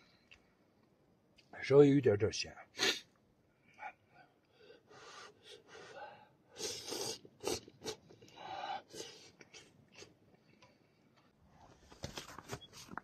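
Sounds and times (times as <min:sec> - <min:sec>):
breaths: 0:03.5 - 0:07.2, 0:08.1 - 0:09.6
man slurping noodles: 0:06.6 - 0:08.2.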